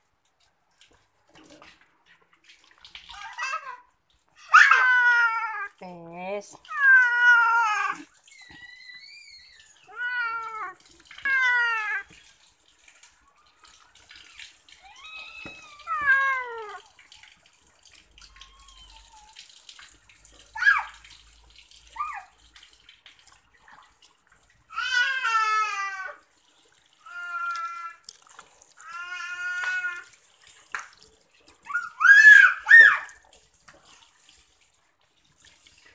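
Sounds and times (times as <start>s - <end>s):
water splashing in a sink: 0.0s - 35.9s
cat meowing: 14.8s - 16.8s.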